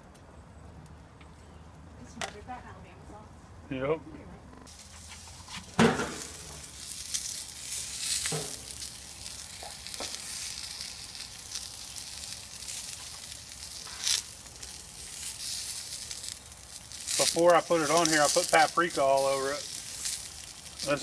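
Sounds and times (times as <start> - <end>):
drippings sizzling on grill: 4.6 - 21.0
loud clunk: 5.8 - 6.3.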